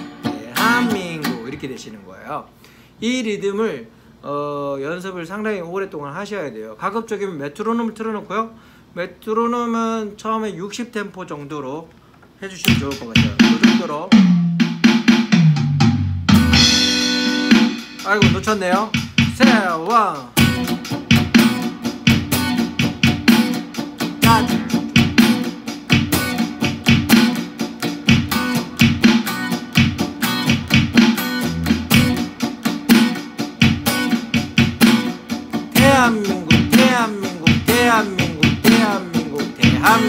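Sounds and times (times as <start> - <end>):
electric guitar strumming: 0.0 - 2.0, 16.3 - 40.0.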